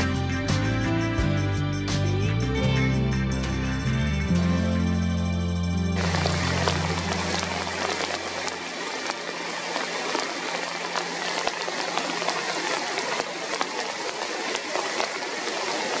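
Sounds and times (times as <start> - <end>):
background music: 0.0 - 9.4
rain hissing: 5.9 - 16.0
raindrop ticks: 6.0 - 16.0
running river water: 6.0 - 16.0.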